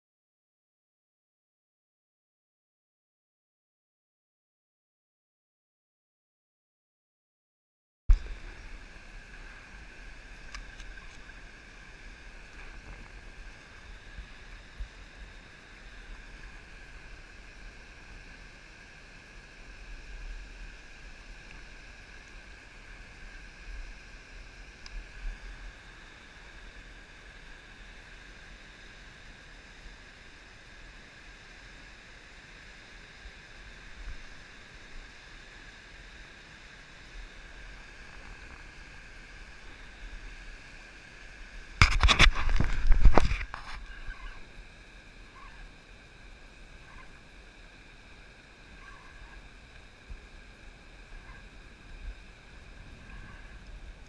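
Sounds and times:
small waves lapping against hull: 37.2 - 46.2
wind rumble on microphone: 41.6 - 44.6, 51.0 - 54.0.

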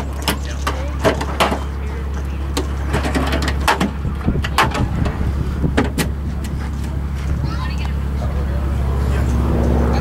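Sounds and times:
steady low hum: 0.0 - 10.0
metal panels and tools clanking: 2.6 - 6.6.

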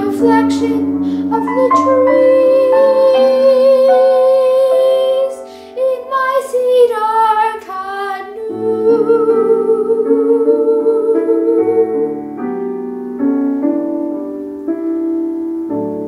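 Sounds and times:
boy singing: 0.0 - 12.2
piano accompaniment: 0.0 - 16.0.

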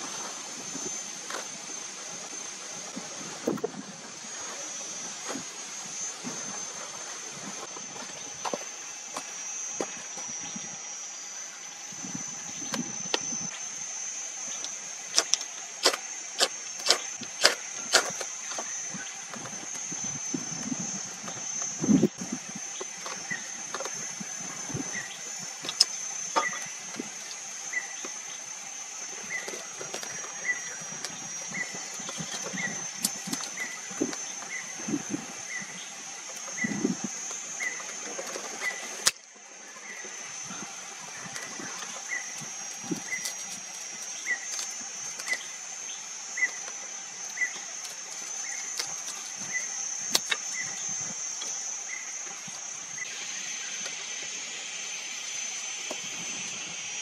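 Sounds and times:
high-pitched drone: 0.0 - 57.0.

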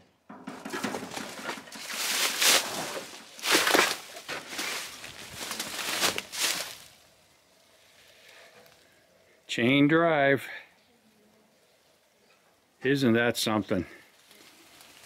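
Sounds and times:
dry twigs rustling and scraping: 0.4 - 9.1, 13.8 - 15.0.

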